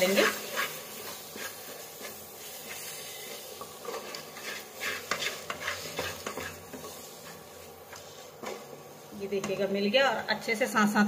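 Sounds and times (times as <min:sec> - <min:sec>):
wooden spatula scraping steel pan: 0:00.0 - 0:08.7
paste sizzling in oil: 0:00.0 - 0:09.8.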